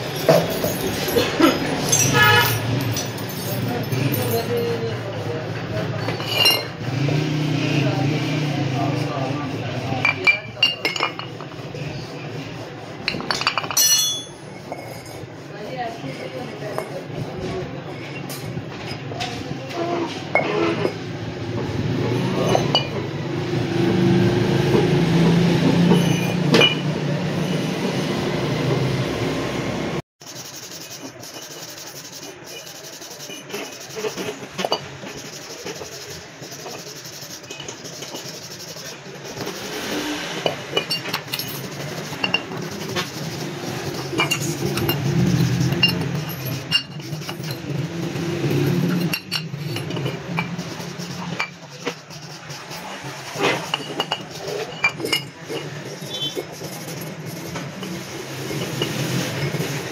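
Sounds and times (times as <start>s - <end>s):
metal clinks: 0.0s - 4.7s, 6.2s - 6.7s, 13.1s - 15.2s, 53.7s - 55.7s
wire brush scraping metal: 30.2s - 59.9s.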